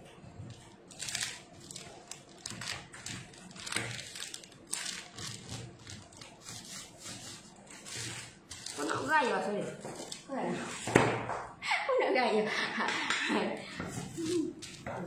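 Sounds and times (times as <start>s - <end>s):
packaging rustling and crinkling: 0.4s - 9.3s.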